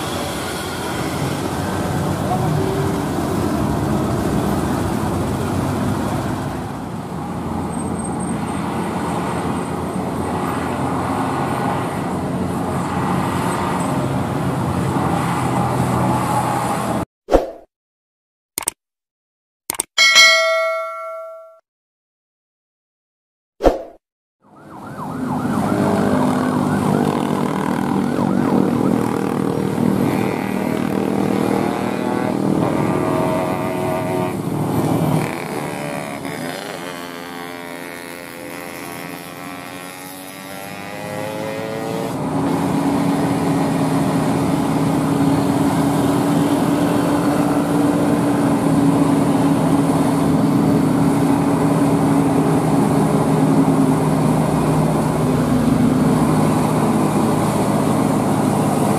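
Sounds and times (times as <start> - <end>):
truck diesel engine under load: 0.0 - 16.0, 42.2 - 58.9
cars passing: 0.0 - 17.0, 24.5 - 58.9
motorcycles passing: 0.0 - 17.0, 24.6 - 58.9.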